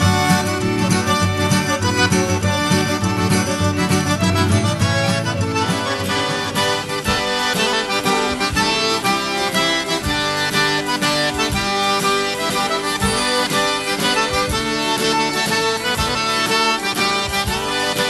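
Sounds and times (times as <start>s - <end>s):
accordion-led folk music: 0.0s - 18.0s.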